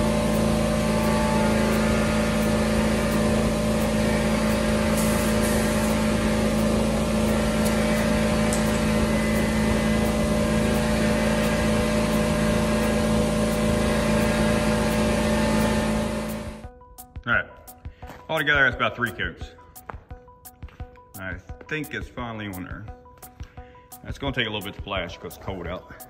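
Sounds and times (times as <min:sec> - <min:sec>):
air compressor running: 0:00.0 - 0:16.8.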